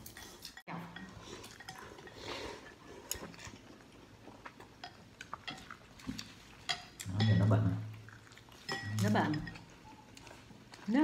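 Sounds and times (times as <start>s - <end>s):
slurping noodle soup: 1.1s - 4.8s.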